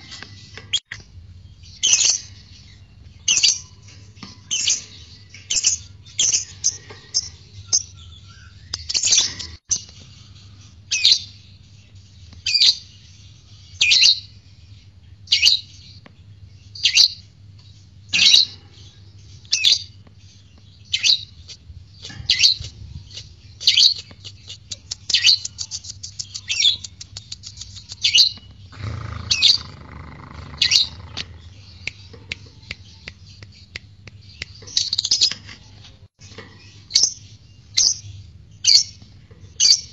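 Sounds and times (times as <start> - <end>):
bird high chirps: 18.1 - 39.0.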